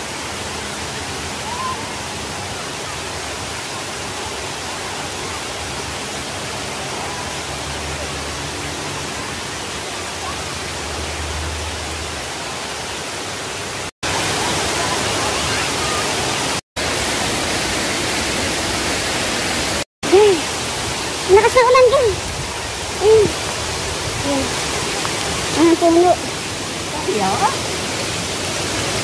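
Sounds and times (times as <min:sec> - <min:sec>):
waterfall rushing: 0:00.0 - 0:29.0.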